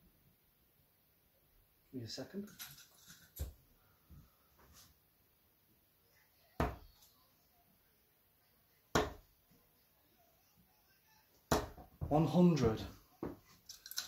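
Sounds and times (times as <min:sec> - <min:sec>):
darts striking dartboard: 0:08.9 - 0:09.2.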